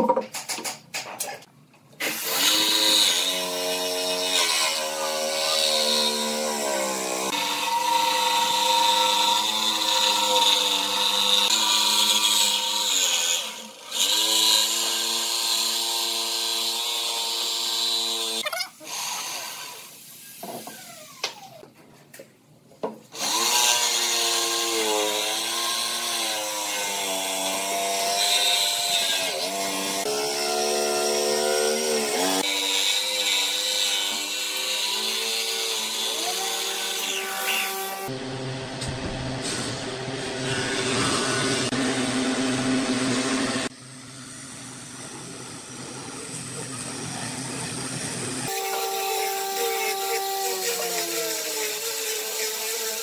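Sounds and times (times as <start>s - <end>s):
jigsaw cutting wood: 2.0s - 21.6s, 23.1s - 38.2s, 48.3s - 53.0s.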